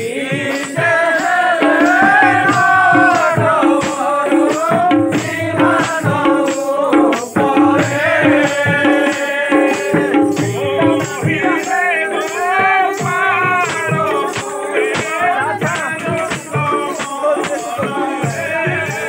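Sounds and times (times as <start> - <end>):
group singing a chant: 0.0 - 19.0
barrel drum beating: 0.3 - 19.0.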